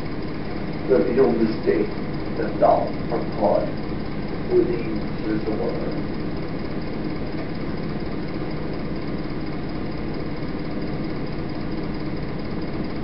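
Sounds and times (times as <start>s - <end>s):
engine-like hum with rough pulsing: 0.0s - 13.0s.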